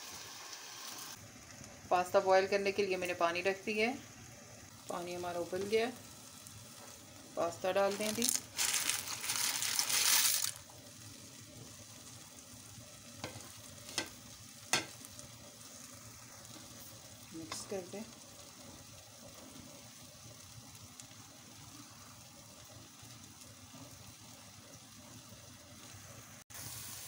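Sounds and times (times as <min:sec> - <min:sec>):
pasta water boiling: 0:00.0 - 0:27.0.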